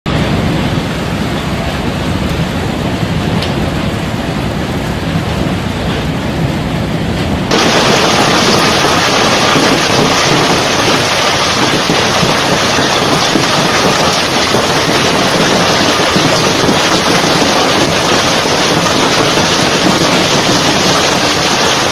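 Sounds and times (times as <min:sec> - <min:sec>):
hail and heavy rain hissing: 0:07.5 - 0:21.9.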